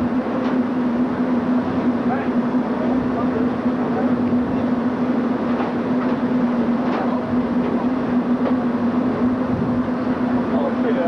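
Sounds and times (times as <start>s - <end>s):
wind rush on microphone: 9.4s - 10.0s.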